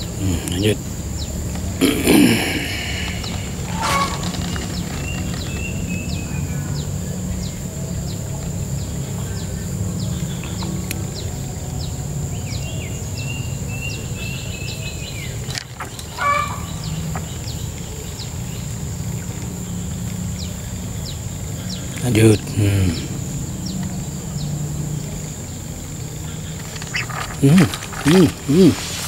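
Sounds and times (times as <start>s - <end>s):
birds chirping and calling: 0.0s - 29.0s
warbling bird call: 1.9s - 6.8s, 14.7s - 17.6s, 26.3s - 29.0s.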